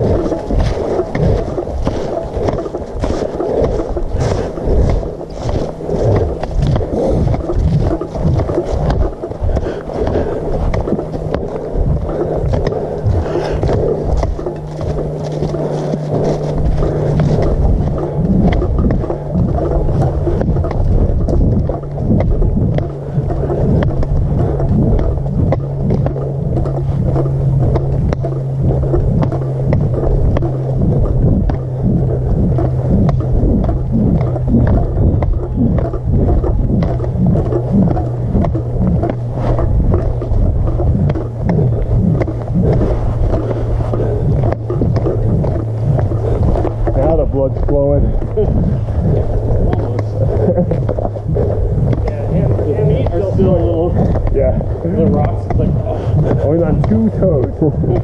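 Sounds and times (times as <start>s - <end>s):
footsteps on gravel: 0.0s - 58.0s
steady low hum: 0.0s - 58.0s
wind rumble on microphone: 0.0s - 58.0s.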